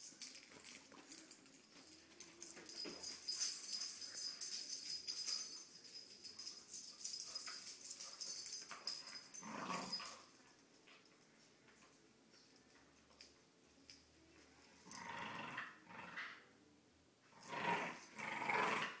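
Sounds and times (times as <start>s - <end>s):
dog collar tags jingling: 0.0s - 15.6s.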